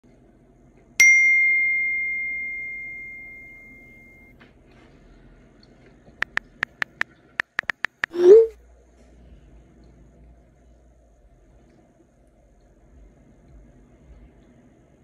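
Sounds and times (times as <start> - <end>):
bright bell-like ding: 1.0 - 4.3
short ticks: 6.2 - 8.2.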